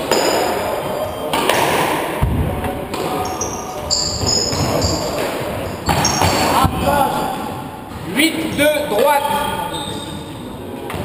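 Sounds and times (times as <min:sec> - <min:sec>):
squash ball hit by rackets: 0:00.0 - 0:00.7
shoes squeaking on wooden floor: 0:03.2 - 0:06.8.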